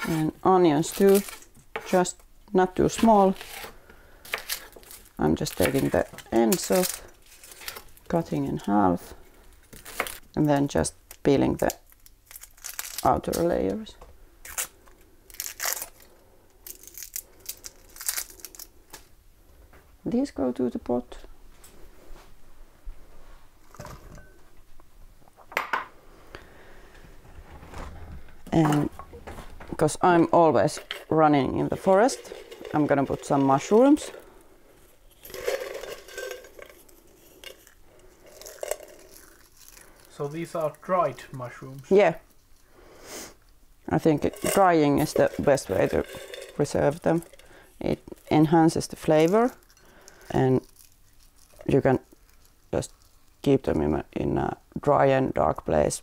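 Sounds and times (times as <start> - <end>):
onion skin peeling papery rustles: 0.0 - 2.1, 2.9 - 19.1, 36.5 - 42.7, 44.2 - 53.7
jar rattling: 30.6 - 34.2, 35.1 - 39.5, 44.0 - 53.0.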